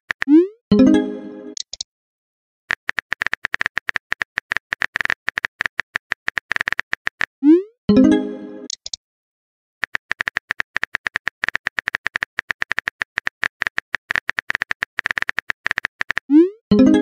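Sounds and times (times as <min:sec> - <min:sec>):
phone keyboard typing clicks: 0:02.7 - 0:07.3, 0:09.8 - 0:16.3.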